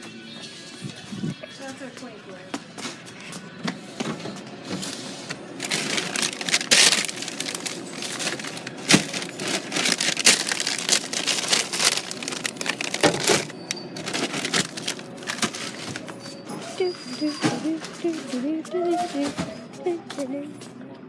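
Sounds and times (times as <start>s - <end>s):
plastic bags crinkling: 5.5s - 16.4s.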